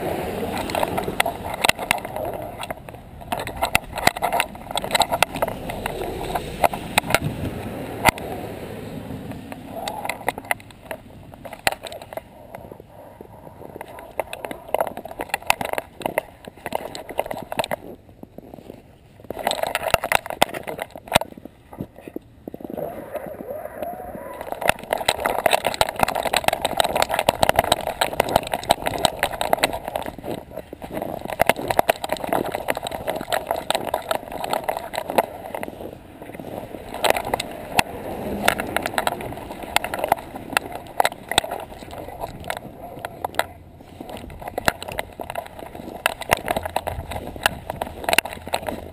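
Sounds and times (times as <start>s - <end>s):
camera mount knocking and rubbing: 0.5s - 7.4s, 9.5s - 18.0s, 19.3s - 22.8s, 24.3s - 48.9s
muffled knocks and scraping of camera mount: 0.5s - 8.3s.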